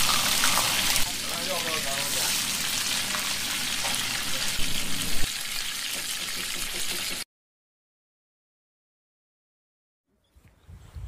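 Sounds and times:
hot oil sizzling: 0.0 - 7.3.

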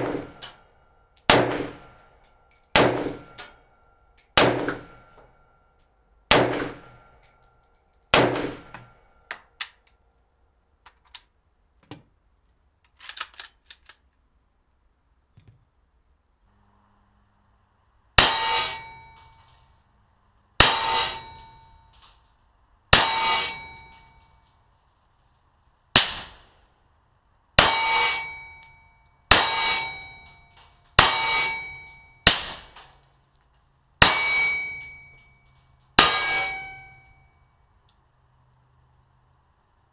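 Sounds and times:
rifle shots: 0.0 - 0.5, 1.3 - 1.9, 2.8 - 3.4, 4.4 - 5.0, 6.3 - 6.9, 8.1 - 8.7, 25.9 - 26.5, 32.3 - 32.8.

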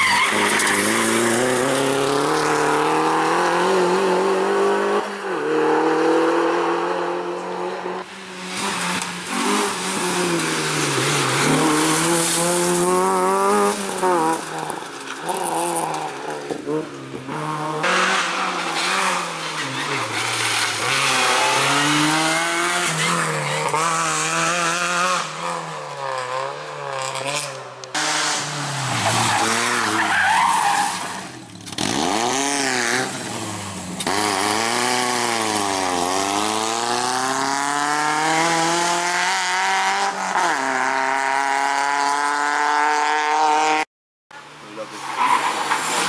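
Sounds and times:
rally car engines revving: 0.0 - 43.8.

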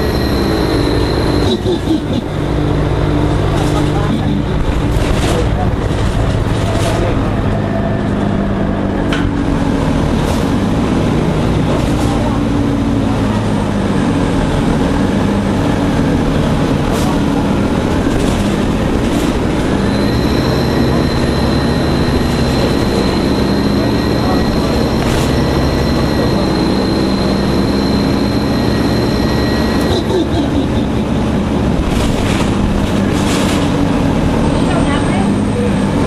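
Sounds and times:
high-pitched whine: 0.0 - 1.6, 19.8 - 30.0
bus engine running: 0.0 - 36.0.

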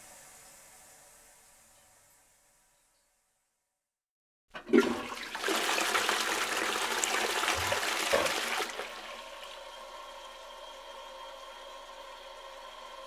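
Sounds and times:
toilet flush handle clunk: 4.6 - 5.2, 7.4 - 8.9
toilet water rushing: 4.6 - 13.0.

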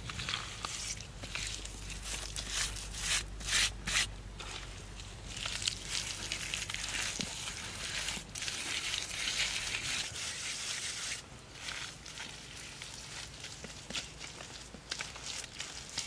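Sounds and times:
hands smearing wet mud plaster: 5.4 - 16.0.

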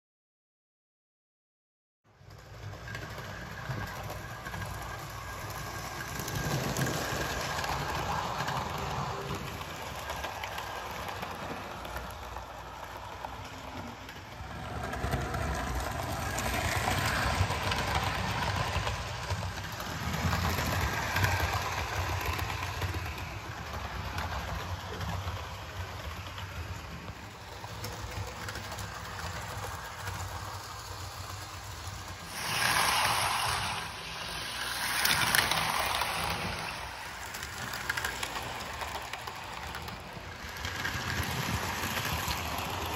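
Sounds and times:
model train motor humming: 26.9 - 42.9.

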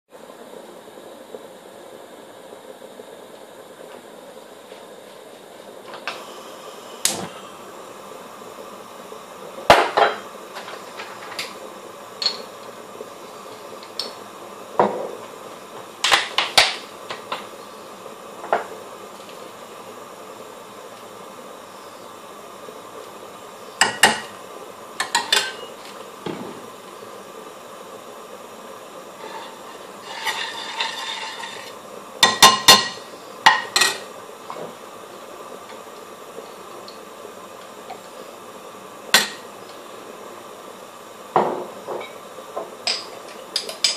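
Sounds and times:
metal utensils clinking on pans: 29.2 - 31.7.

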